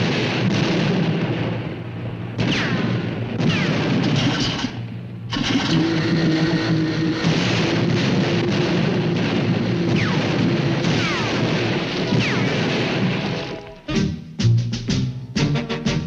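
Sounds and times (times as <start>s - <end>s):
orchestral music: 13.4s - 16.0s.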